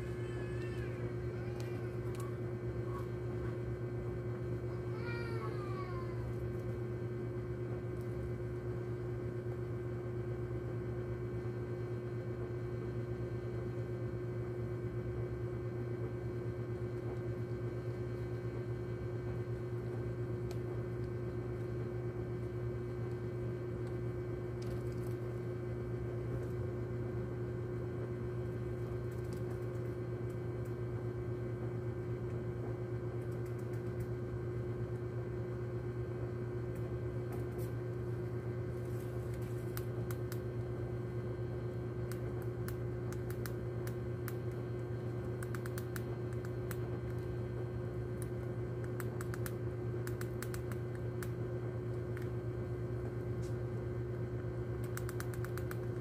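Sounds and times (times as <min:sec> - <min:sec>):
low electrical hum: 0:00.0 - 0:56.0
rat gnawing and scratching: 0:22.4 - 0:25.4, 0:28.4 - 0:30.8, 0:33.2 - 0:34.2, 0:38.8 - 0:40.6, 0:42.0 - 0:47.4, 0:48.0 - 0:52.4, 0:54.8 - 0:56.0.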